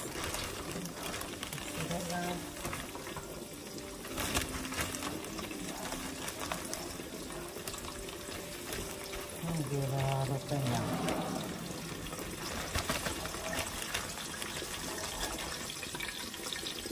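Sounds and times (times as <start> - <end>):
plastic bag rustling: 0.0 - 16.8
fish sizzling in oil: 0.0 - 16.9.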